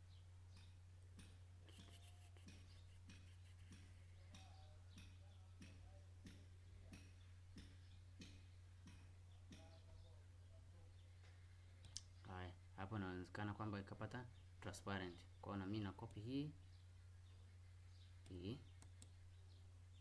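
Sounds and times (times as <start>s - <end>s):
computer mouse clicks: 18.2s - 19.2s.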